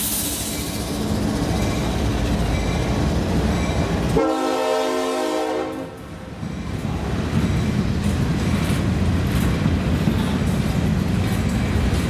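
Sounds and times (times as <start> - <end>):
train rumbling past: 0.0 - 12.0
locomotive air horn: 4.2 - 6.0.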